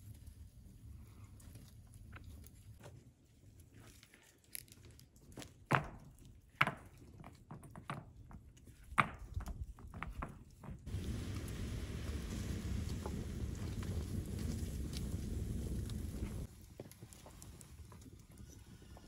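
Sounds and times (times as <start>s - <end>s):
low steady rumble: 10.9s - 16.5s.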